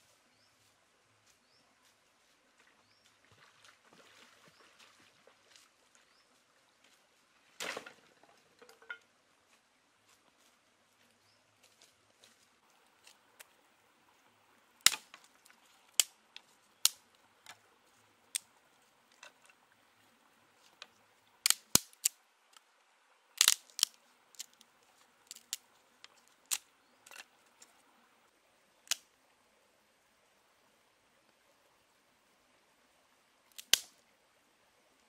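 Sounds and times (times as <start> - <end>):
wooden sticks snapping: 14.8 - 17.6, 20.7 - 22.2, 23.4 - 27.7, 28.9 - 29.1, 33.5 - 34.0.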